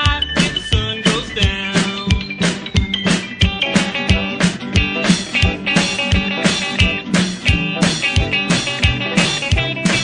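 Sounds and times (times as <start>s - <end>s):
rock guitar: 0.0s - 10.0s
steady drum beat: 0.0s - 10.0s.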